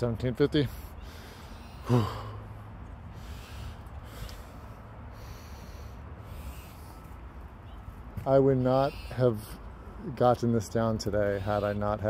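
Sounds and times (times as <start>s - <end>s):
man breathing hard: 0.7s - 7.0s.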